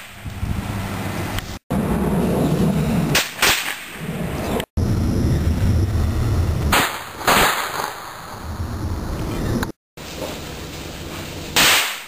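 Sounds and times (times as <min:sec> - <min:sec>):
steady low rumble: 0:04.0 - 0:07.2, 0:08.1 - 0:09.8
sharp explosive bangs: 0:06.7 - 0:08.4.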